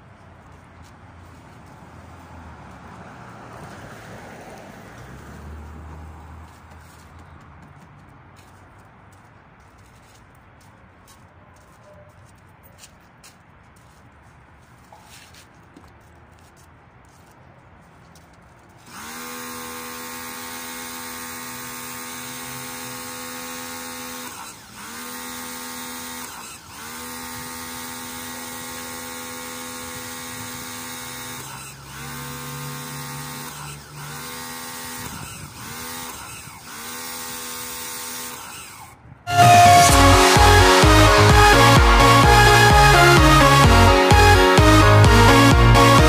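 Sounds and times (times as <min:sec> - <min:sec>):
pressure washer motor whining: 0:18.8 - 0:46.0.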